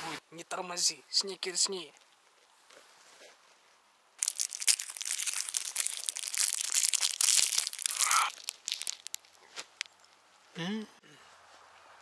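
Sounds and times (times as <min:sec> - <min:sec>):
wrapper tearing: 0:04.2 - 0:10.0
plastic wrapper crinkling: 0:04.2 - 0:10.2.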